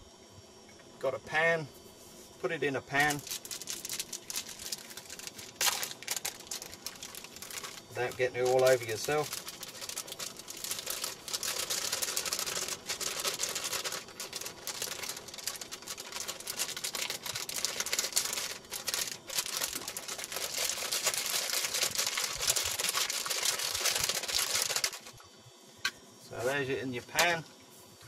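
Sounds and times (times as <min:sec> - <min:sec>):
packet crinkling and rustling: 0:02.9 - 0:25.2.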